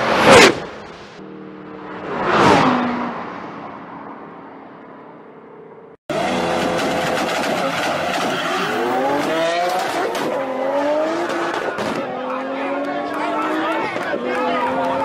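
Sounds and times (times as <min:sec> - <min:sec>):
passing car engine: 0:00.0 - 0:05.4, 0:06.1 - 0:15.0
cars launching with revving engines: 0:06.1 - 0:15.0.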